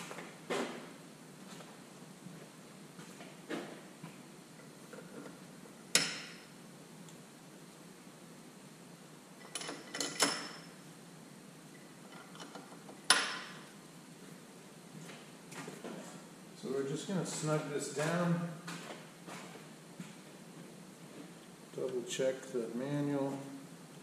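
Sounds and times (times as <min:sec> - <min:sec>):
metallic clanks of tools: 0:09.4 - 0:10.7.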